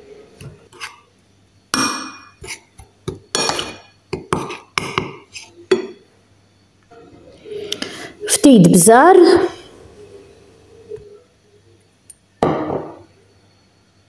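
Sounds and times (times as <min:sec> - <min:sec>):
metal spoon scraping a dish: 0:00.7 - 0:01.1, 0:02.2 - 0:02.7, 0:03.4 - 0:05.6.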